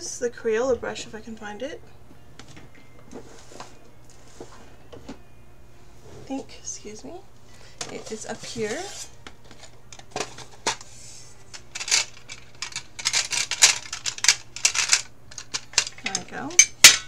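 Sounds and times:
paintbrushes rattling in metal tin: 11.5s - 16.4s.

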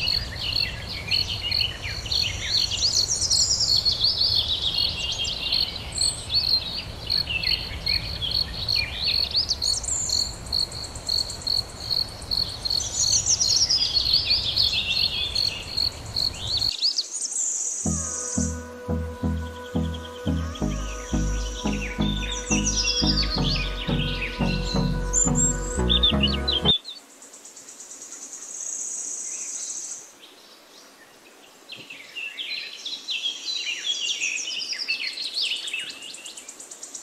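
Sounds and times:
insect chirping: 10.1s - 13.2s.

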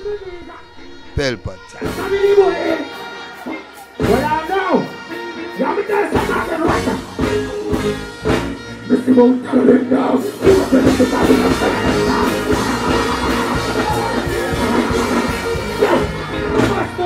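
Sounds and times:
dancehall backing track: 1.6s - 17.0s.

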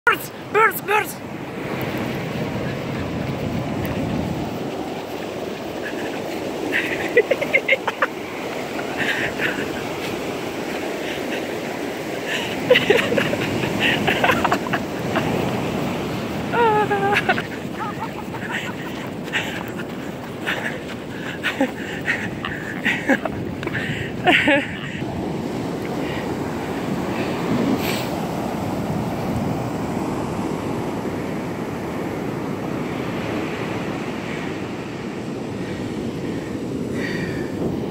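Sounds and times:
ocean surf washing onto beach: 0.1s - 37.9s
wind on microphone: 1.5s - 7.5s, 12.7s - 30.0s
gulls calling: 2.2s - 25.0s.

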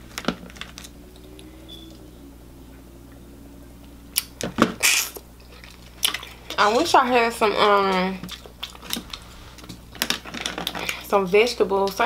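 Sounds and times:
crackles and squishes of lemon squeezing: 7.9s - 11.1s.

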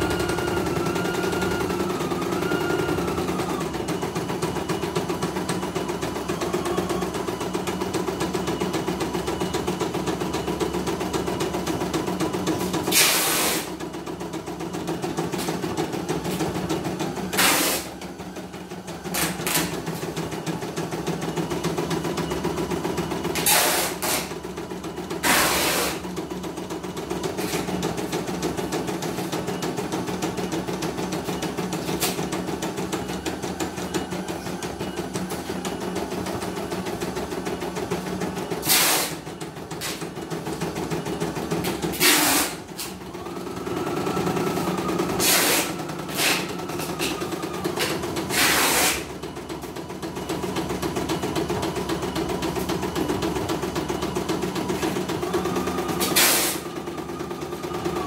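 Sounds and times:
embroidery machine stitching: 35.9s - 58.0s.

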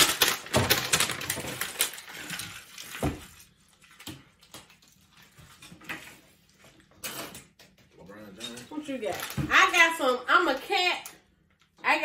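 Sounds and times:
paper rustling and crinkling: 0.0s - 6.9s.

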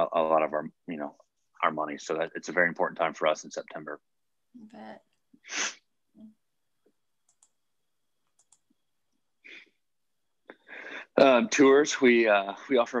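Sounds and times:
person breathing: 9.4s - 9.8s, 10.5s - 11.2s.

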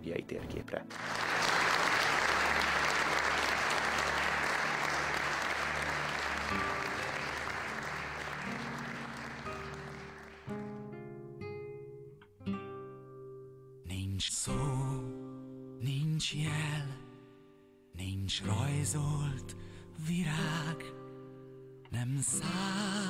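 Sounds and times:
soft music: 0.0s - 23.0s
audience applauding: 0.9s - 10.8s
plucked acoustic guitar: 8.4s - 23.0s.

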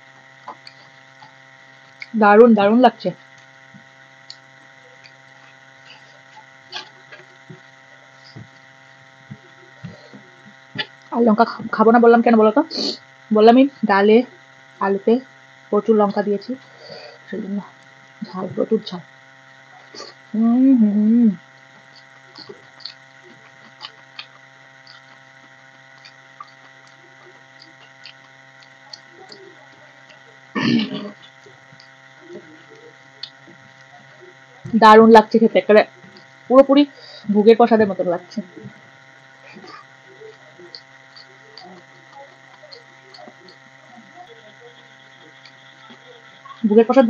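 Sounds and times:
electrical hum: 0.0s - 47.0s
fingers mixing wet food: 21.6s - 30.5s, 38.6s - 46.4s.

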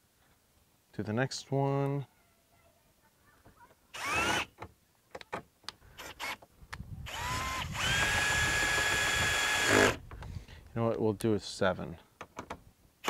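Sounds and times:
cordless drill whirring: 4.0s - 4.5s, 6.0s - 6.4s, 7.0s - 10.0s
drill clutch clicks: 7.1s - 10.2s.

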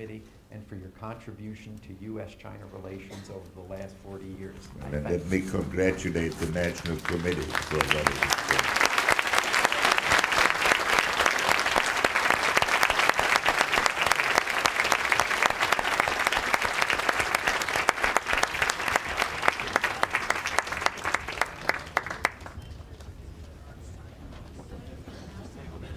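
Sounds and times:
large audience applauding: 5.1s - 23.0s.

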